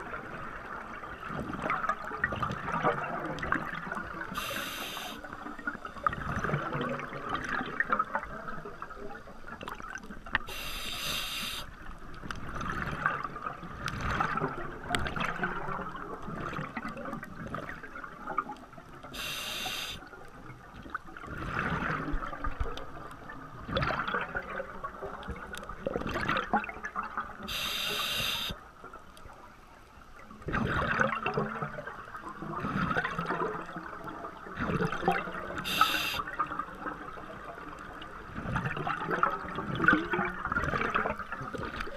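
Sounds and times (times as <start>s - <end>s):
regulator inhale hiss: 4.4s - 5.3s, 10.5s - 11.7s, 19.2s - 20.0s, 27.5s - 28.6s, 35.6s - 36.3s
bubbling exhalations underwater: 30.5s - 31.7s.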